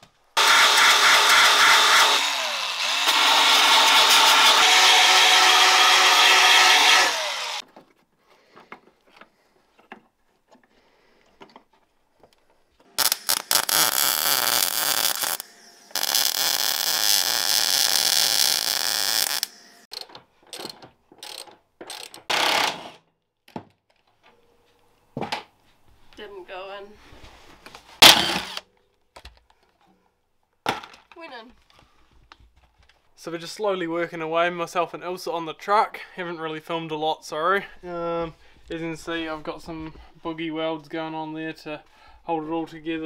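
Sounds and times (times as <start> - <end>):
cordless drill-driver whirring: 0.4 - 7.6, 28.0 - 28.6
electric belt file grinding metal: 0.4 - 7.6, 13.0 - 19.8
welding crackling hiss: 13.0 - 19.9.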